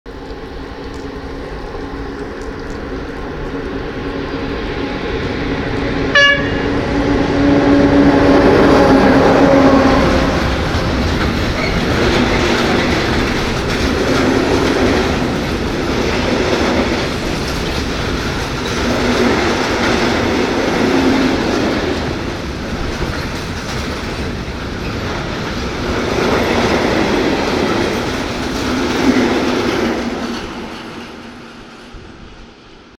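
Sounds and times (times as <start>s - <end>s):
locomotive hum: 0.1s - 32.5s
train wagons rumbling and clattering: 0.1s - 32.9s
train horn toot: 6.1s - 11.1s.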